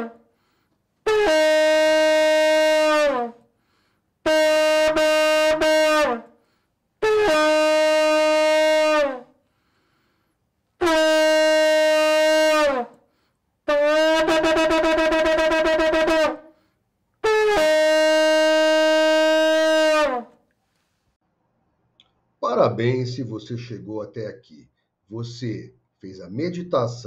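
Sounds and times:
shofar blasts: 0:00.0 - 0:00.2, 0:01.1 - 0:03.4, 0:04.3 - 0:06.3, 0:07.0 - 0:09.4, 0:10.8 - 0:13.0, 0:13.7 - 0:16.6, 0:17.2 - 0:20.4.

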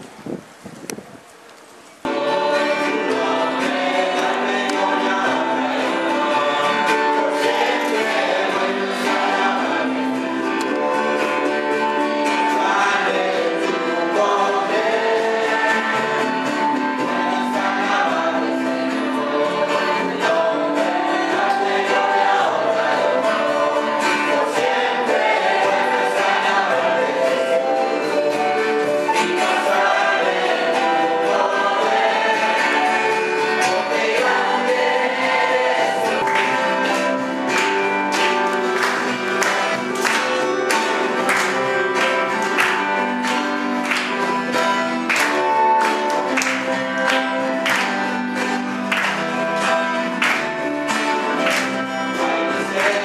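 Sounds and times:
wind noise on microphone: 0:00.0 - 0:02.0
guitar accompaniment: 0:00.0 - 0:53.0
congregation singing worship song: 0:02.0 - 0:53.0.

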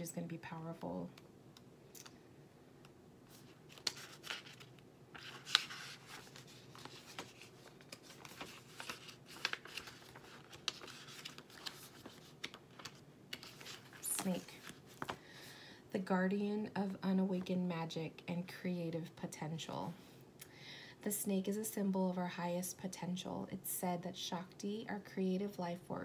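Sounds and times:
book pages rustling: 0:03.3 - 0:15.2.

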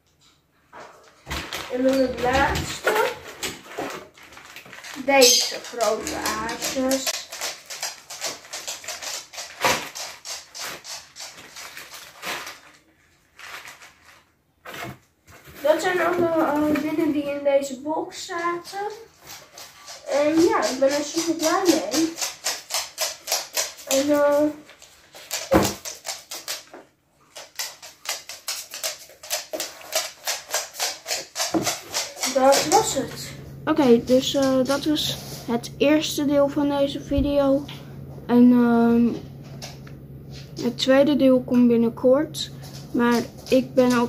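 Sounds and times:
plastic packaging crinkling: 0:01.3 - 0:17.2.

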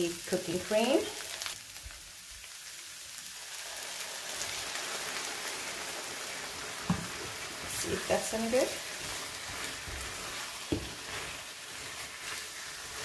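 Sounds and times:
food sizzling in a frying pan: 0:00.0 - 0:13.0
cream poured onto hot pan: 0:03.3 - 0:07.7.

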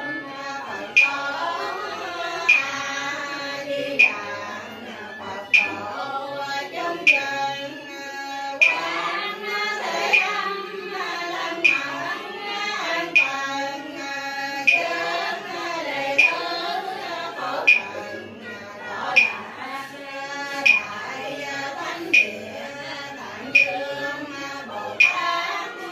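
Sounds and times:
voices chanting a prayer: 0:00.0 - 0:25.9
sharp percussive strike: 0:00.1 - 0:03.4, 0:04.0 - 0:04.8, 0:05.5 - 0:06.0, 0:08.6 - 0:09.1, 0:09.8 - 0:10.5, 0:11.4 - 0:12.1, 0:14.7 - 0:15.6, 0:16.2 - 0:19.6, 0:20.5 - 0:22.6, 0:23.4 - 0:24.0, 0:24.7 - 0:25.6.

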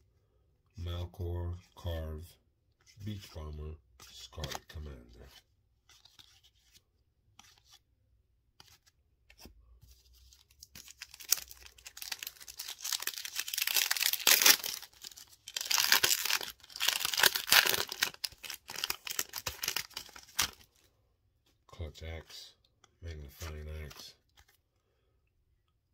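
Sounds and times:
cards clicking: 0:04.3 - 0:04.7
foil wrapper tearing and crinkling: 0:10.8 - 0:20.7.

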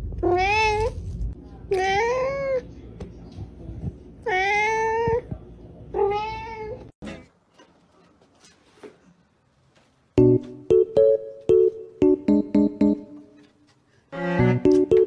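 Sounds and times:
cat meowing: 0:04.3 - 0:05.3, 0:06.0 - 0:06.8.

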